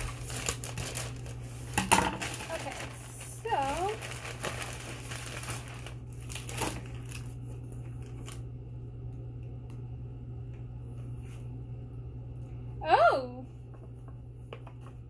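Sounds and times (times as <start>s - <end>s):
plastic bag crinkling: 0.0s - 8.5s.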